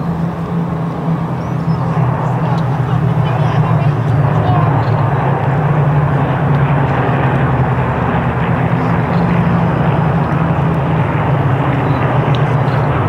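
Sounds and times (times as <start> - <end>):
propeller planes droning: 0.0 - 13.0.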